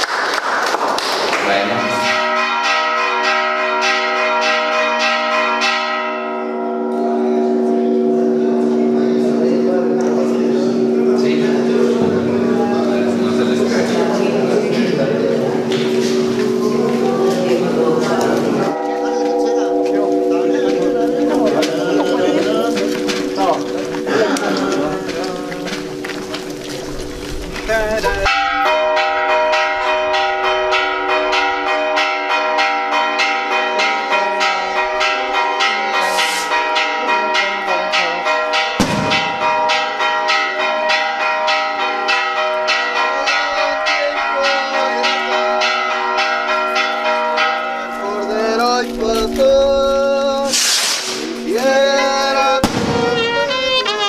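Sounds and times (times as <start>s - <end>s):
church bells pealing: 1.0s - 50.6s, 51.2s - 54.0s
sharp bang: 38.8s - 39.4s, 52.6s - 53.3s
hiss: 50.5s - 51.3s
brass band playing: 52.6s - 54.0s.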